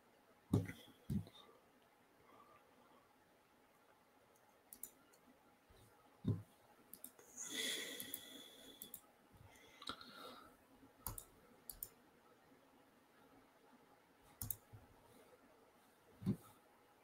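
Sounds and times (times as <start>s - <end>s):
computer mouse clicks: 4.3s - 5.2s, 6.9s - 7.3s, 8.0s - 9.0s, 11.0s - 12.0s, 14.4s - 14.7s.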